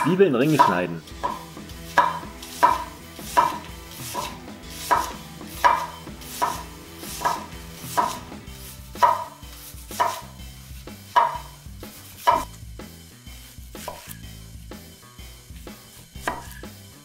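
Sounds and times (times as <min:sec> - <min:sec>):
knife knocking on cutting board: 0:04.9 - 0:06.6, 0:09.0 - 0:09.3, 0:11.2 - 0:11.5.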